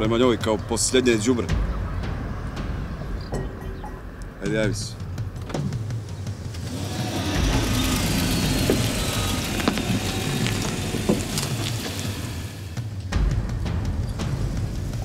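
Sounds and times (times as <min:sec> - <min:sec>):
car engine running: 0:06.1 - 0:12.9.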